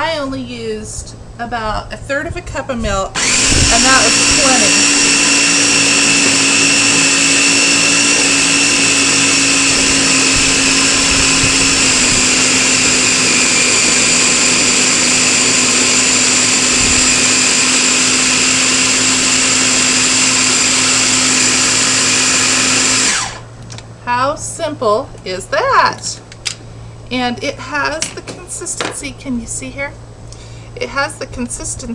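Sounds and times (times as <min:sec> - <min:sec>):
blender motor whining: 0:03.2 - 0:23.6.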